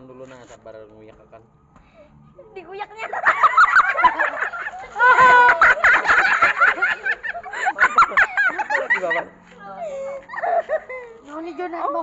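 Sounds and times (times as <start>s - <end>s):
excited voices: 2.5s - 12.0s
man laughing: 3.5s - 11.3s.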